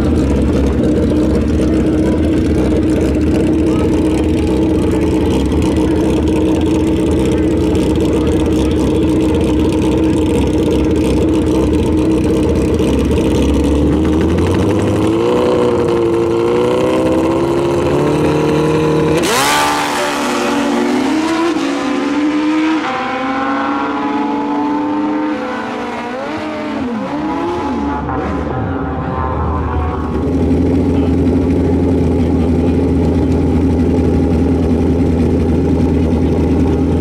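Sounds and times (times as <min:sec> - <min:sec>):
motorcycle engines revving: 0:00.0 - 0:37.0.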